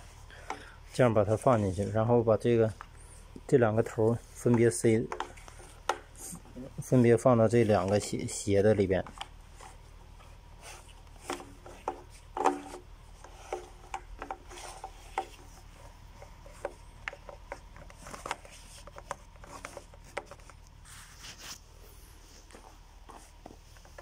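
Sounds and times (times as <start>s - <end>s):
plastic tubing rubbing: 2.7s - 21.7s
plastic pipe parts knocking: 3.4s - 6.6s, 11.1s - 20.6s.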